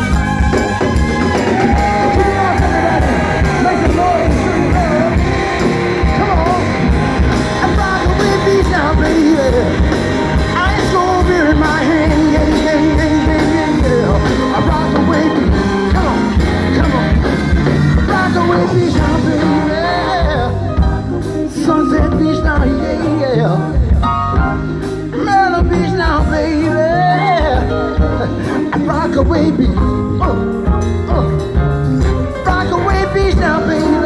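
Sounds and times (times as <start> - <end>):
saxophone solo: 0.0 - 10.8
drum beat: 0.0 - 21.0
bass: 0.0 - 34.0.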